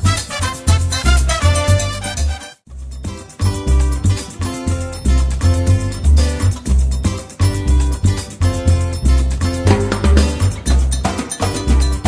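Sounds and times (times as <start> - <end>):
plucked guitar over bass line: 3.0 - 12.0.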